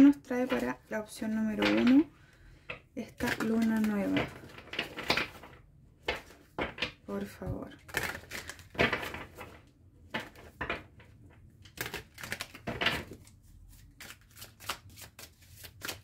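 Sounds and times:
cards being shuffled: 3.2s - 6.4s, 7.8s - 9.6s, 11.7s - 16.0s.

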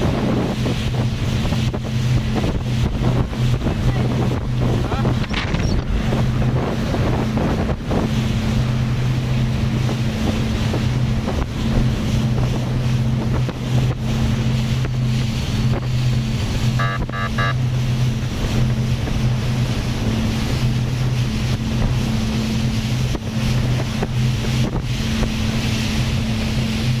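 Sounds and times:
boat engine humming: 0.0s - 27.0s
water rushing along hull: 0.0s - 27.0s
wind buffeting microphone: 0.0s - 27.0s
quick beeps: 16.8s - 17.6s.

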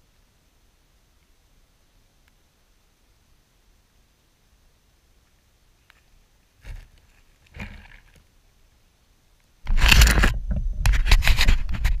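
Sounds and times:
faint rustles: 5.2s - 8.8s
fingers and leaves scraping microphone: 5.8s - 8.3s, 9.6s - 12.0s.

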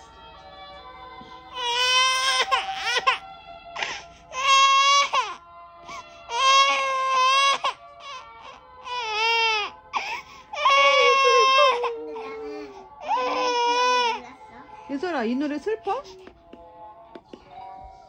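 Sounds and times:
soft lullaby music: 0.0s - 18.0s
toddler crying: 1.5s - 3.2s, 3.8s - 14.2s.

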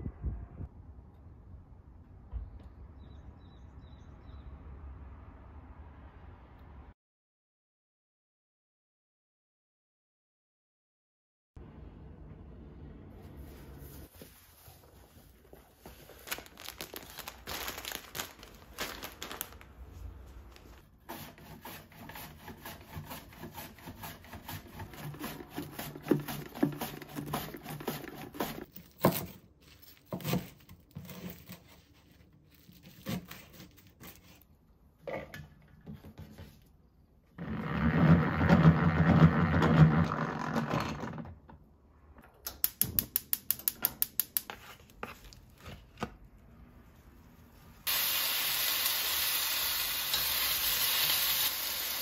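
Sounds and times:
onion rasping on mandoline slicer: 21.0s - 29.2s.

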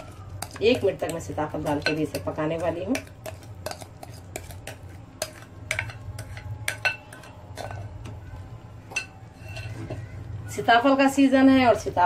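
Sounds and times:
utensils scraping bowl and pot: 0.0s - 8.0s, 8.9s - 10.0s
low steady hum: 0.0s - 12.0s.

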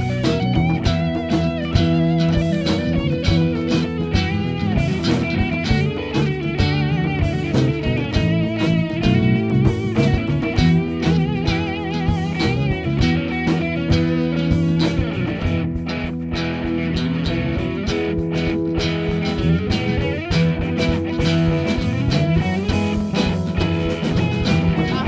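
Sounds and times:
electric guitar: 0.0s - 25.0s
small band playing instrumental: 0.0s - 25.0s.

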